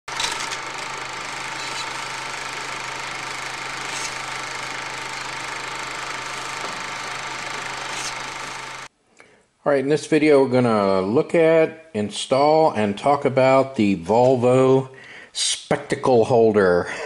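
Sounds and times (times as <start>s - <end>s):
film projector whirring: 0.0s - 8.9s
constant low hum: 0.1s - 8.9s.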